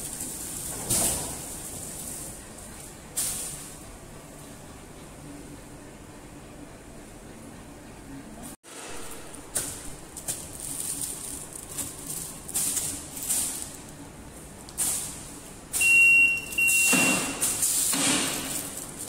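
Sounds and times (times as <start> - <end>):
high electronic beep: 15.8 - 17.4.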